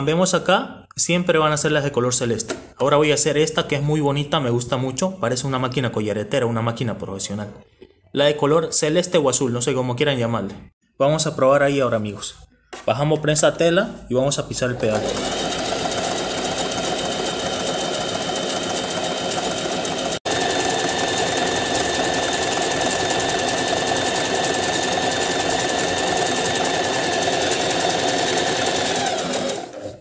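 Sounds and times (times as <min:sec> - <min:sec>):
sewing machine stitching: 0:14.6 - 0:30.0.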